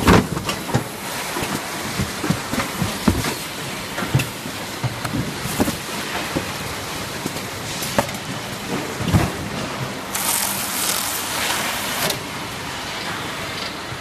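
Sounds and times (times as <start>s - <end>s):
packing machinery running: 0.0s - 14.0s.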